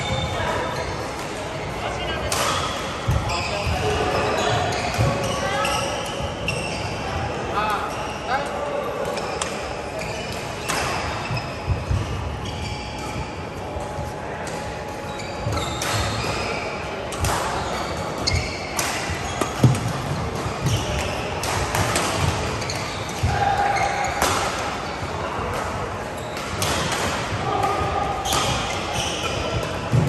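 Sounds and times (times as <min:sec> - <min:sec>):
shoes squeaking on court: 0:02.6 - 0:07.0, 0:09.1 - 0:16.9, 0:17.5 - 0:24.2, 0:28.0 - 0:30.0
racket striking shuttlecock: 0:24.2 - 0:24.6.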